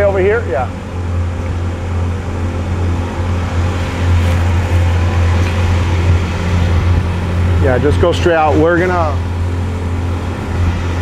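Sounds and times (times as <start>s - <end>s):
car engine droning: 0.0s - 11.0s.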